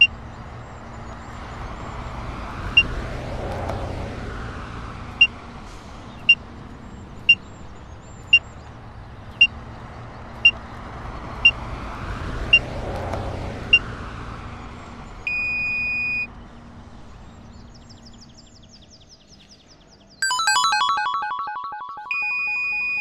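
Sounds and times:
short beeps: 0:15.3 - 0:16.3, 0:20.2 - 0:23.0
steady beep: 0:20.2 - 0:23.0.

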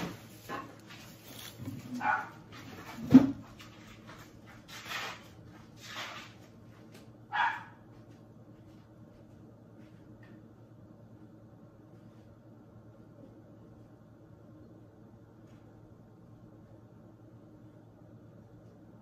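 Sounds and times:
dog barking: 0:01.9 - 0:02.4, 0:07.3 - 0:07.8.

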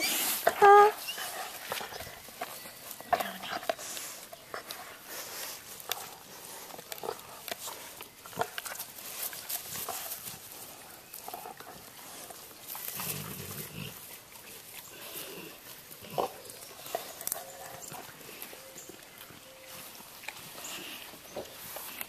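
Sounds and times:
dogs playing: 0:00.0 - 0:22.0.

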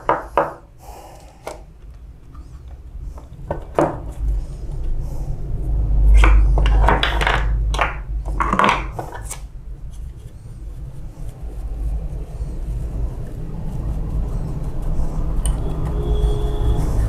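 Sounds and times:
plastic parts scraping and knocking: 0:01.2 - 0:04.3, 0:06.1 - 0:10.1.

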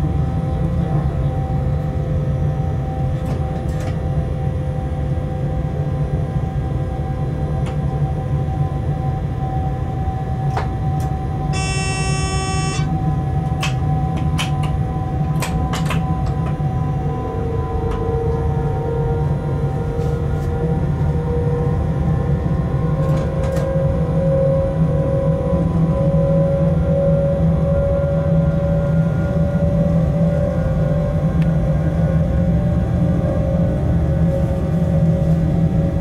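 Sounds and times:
constant whine: 0:09.1 - 0:13.8
buzzing tone: 0:11.6 - 0:12.9.

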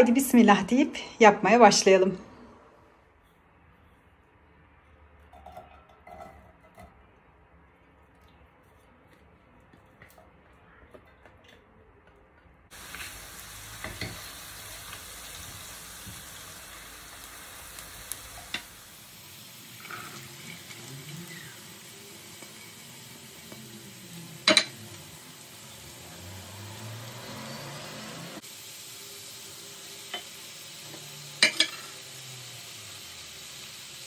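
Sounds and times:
utensil clinking on pan: 0:05.3 - 0:07.0
food sizzling in a pan: 0:12.7 - 0:34.0.

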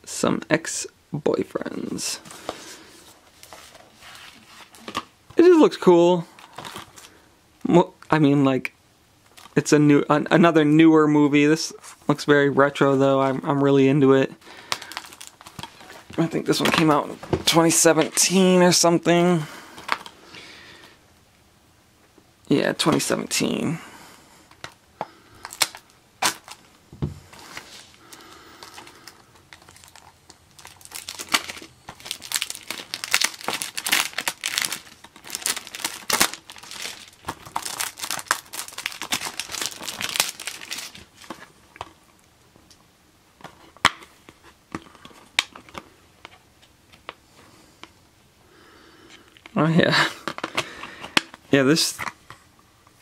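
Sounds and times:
plastic wrap crinkling: 0:06.3 - 0:07.1, 0:14.6 - 0:18.3, 0:25.4 - 0:42.2.

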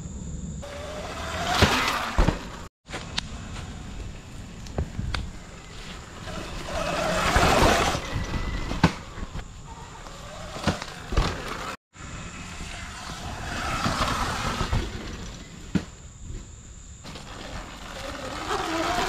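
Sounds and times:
knobby tyres on dirt: 0:00.1 - 0:19.0
electric motor whine: 0:17.1 - 0:19.0.

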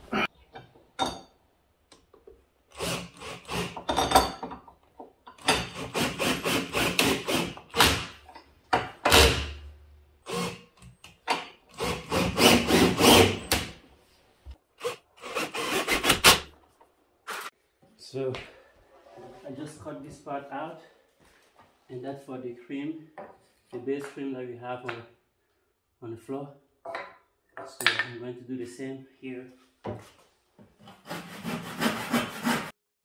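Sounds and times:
handsaw cutting wood: 0:02.8 - 0:03.8, 0:05.6 - 0:08.2, 0:10.3 - 0:10.7, 0:11.7 - 0:13.7, 0:14.8 - 0:16.5, 0:30.8 - 0:32.8.

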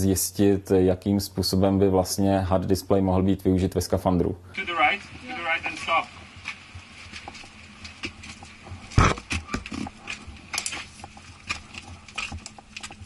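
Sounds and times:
faint steady hum: 0:00.0 - 0:13.0
rustling and knocking handling noise: 0:06.3 - 0:13.0.

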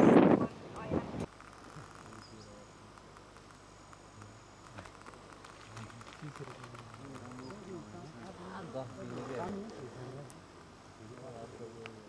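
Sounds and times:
low hiss: 0:00.0 - 0:12.0
faint distant voices: 0:00.4 - 0:12.0
high-pitched insect buzzing: 0:01.2 - 0:10.6.

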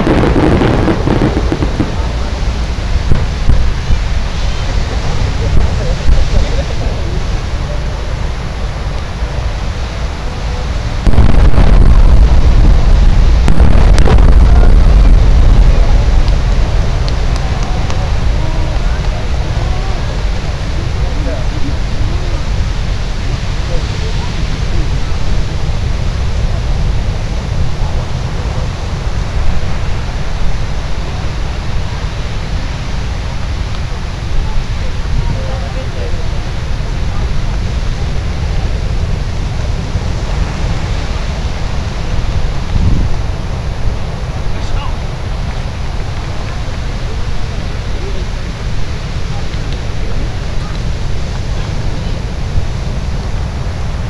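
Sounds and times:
firework booms with echo: 0:00.0 - 0:02.1, 0:11.0 - 0:17.4
steady low rumble: 0:00.0 - 0:54.0
wind buffeting microphone: 0:00.0 - 0:54.0.

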